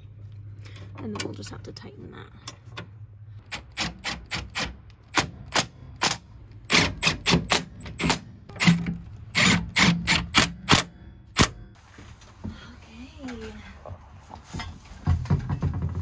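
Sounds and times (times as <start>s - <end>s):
impact driver hammering: 3.5s - 11.7s.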